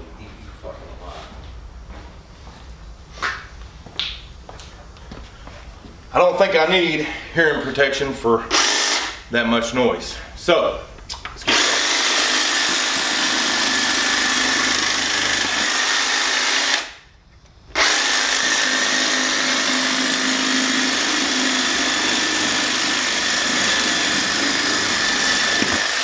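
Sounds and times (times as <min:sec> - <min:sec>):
hedge trimmer running: 0:08.5 - 0:09.2, 0:11.4 - 0:17.0, 0:17.7 - 0:26.0.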